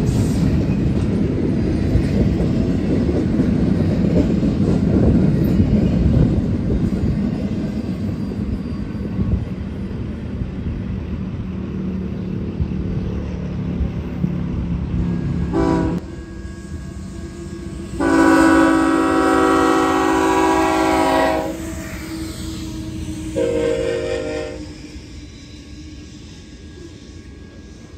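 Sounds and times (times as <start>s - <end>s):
freight train rumbling past: 0.0s - 27.9s
locomotive horn blasts: 15.5s - 16.1s, 18.0s - 21.8s, 23.4s - 24.6s.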